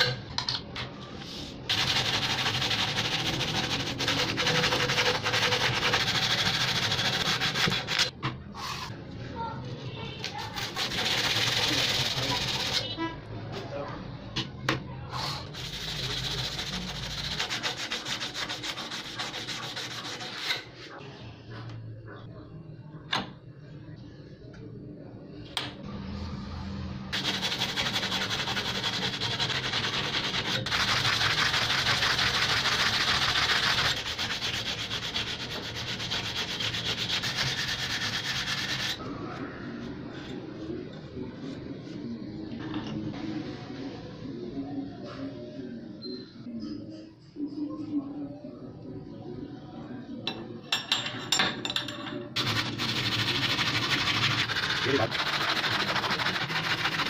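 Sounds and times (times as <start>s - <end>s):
sandpaper rubbing on steel: 1.7s - 8.9s, 10.4s - 12.9s, 15.4s - 20.7s, 27.1s - 39.0s, 52.4s - 57.0s.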